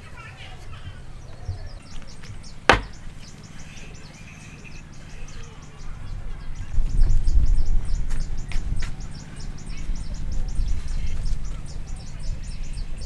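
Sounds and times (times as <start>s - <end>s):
wood knock: 2.7s - 3.0s.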